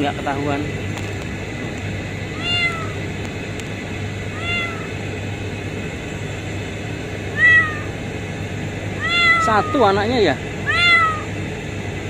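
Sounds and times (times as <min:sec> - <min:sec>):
steady low hum: 0:00.0 - 0:12.0
kitten mewing: 0:02.3 - 0:03.0, 0:04.3 - 0:05.0, 0:07.3 - 0:08.0, 0:08.9 - 0:10.0, 0:10.6 - 0:11.4.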